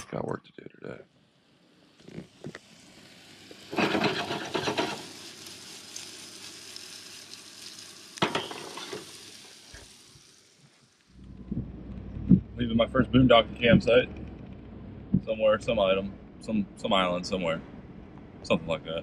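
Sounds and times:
vegetables sizzling in a skillet: 0:02.4 - 0:11.2
pan scraping and clattering: 0:03.7 - 0:05.1, 0:08.2 - 0:09.1.

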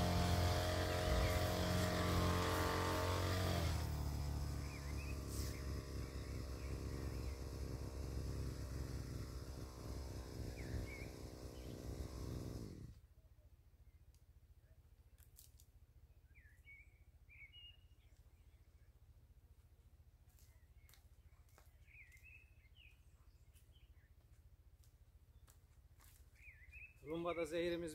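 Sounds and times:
small engine running: 0:00.0 - 0:13.1
faint bird chirps: 0:16.2 - 0:19.0.

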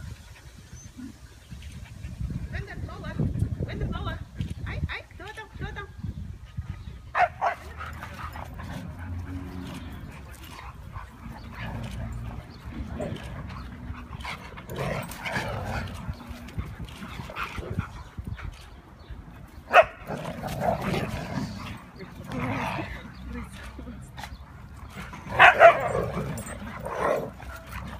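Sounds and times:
dogs vocalizing while playing: 0:06.3 - 0:27.9.

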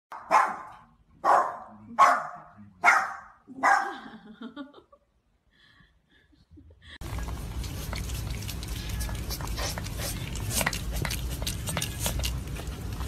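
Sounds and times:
small dog barking: 0:00.1 - 0:04.0.

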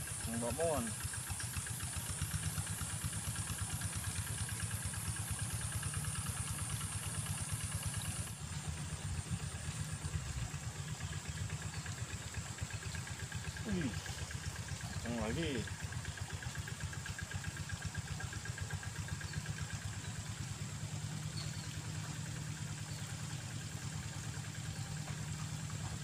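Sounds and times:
high steady hiss: 0:00.0 - 0:11.0
small engine running: 0:00.0 - 0:26.0.

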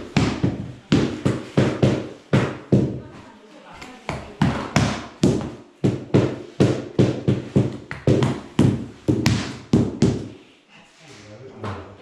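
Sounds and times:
rubber mallet knocking wood floor: 0:00.0 - 0:03.0, 0:04.1 - 0:10.4.

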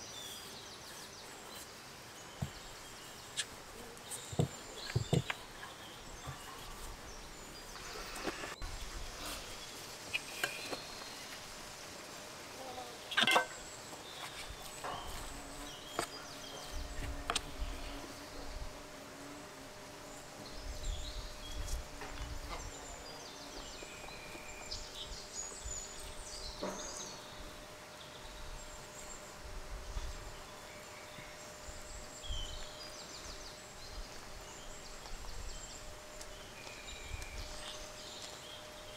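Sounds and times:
birds chirping: 0:00.0 - 0:38.9.

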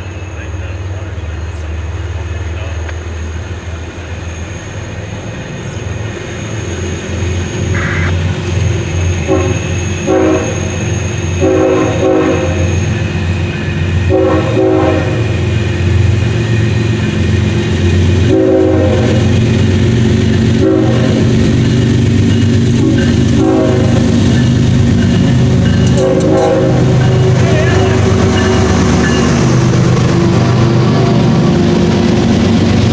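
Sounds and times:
diesel locomotive rumble: 0:00.0 - 0:32.9
locomotive air horn blasts: 0:07.7 - 0:08.2, 0:09.2 - 0:10.8, 0:11.4 - 0:12.7, 0:14.1 - 0:15.4, 0:18.2 - 0:19.4, 0:20.6 - 0:21.3, 0:22.8 - 0:24.1, 0:25.9 - 0:28.8.

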